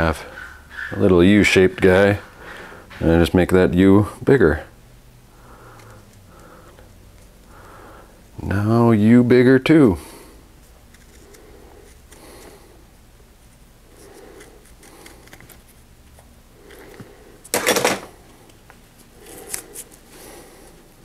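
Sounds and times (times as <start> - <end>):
tape rustling: 13.5 - 20.1.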